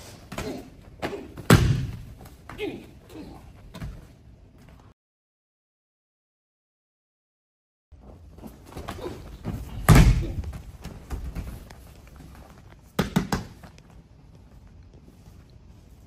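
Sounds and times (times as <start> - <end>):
sharp slaps: 0.3 - 2.0.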